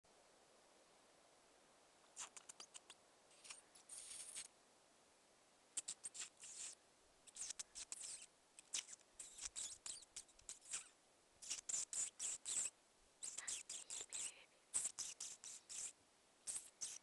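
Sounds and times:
person imitating mouse squeaks: 2.1s - 4.5s, 5.8s - 17.0s.

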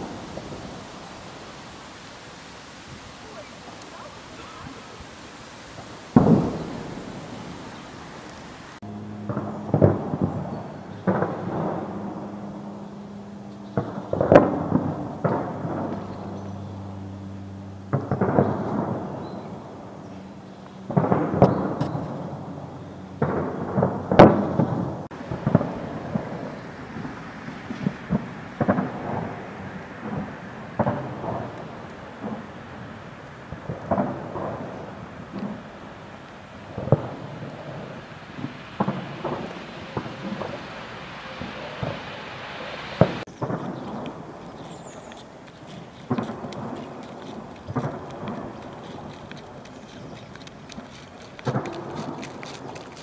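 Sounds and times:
distant explosions with echo: 0.0s - 16.6s, 17.9s - 45.0s
steady low hum: 0.0s - 24.2s
smaller bangs: 5.7s - 12.3s
distant gunfire: 6.2s - 7.0s.

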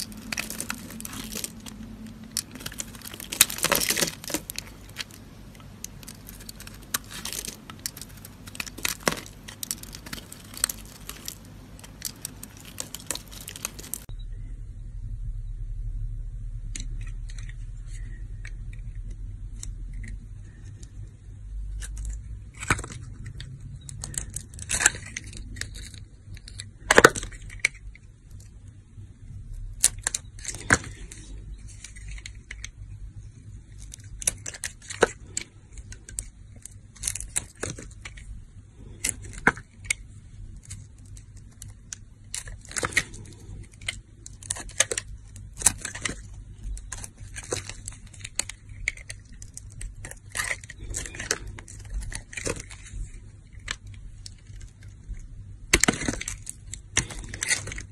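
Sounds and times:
knife scraping soap: 42.3s - 54.6s.

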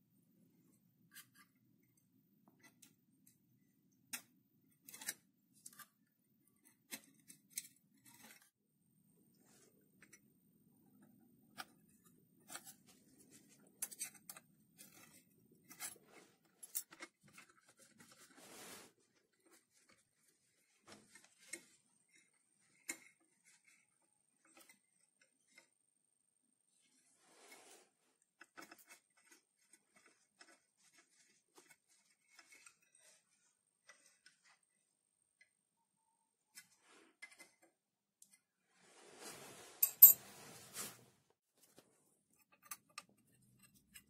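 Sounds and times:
scraping rustles: 38.8s - 41.2s.

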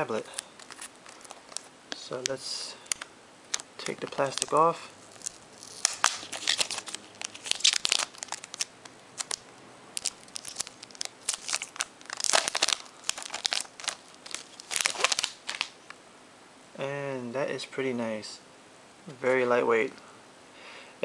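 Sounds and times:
plastic film peeling and crinkling: 0.0s - 15.8s.

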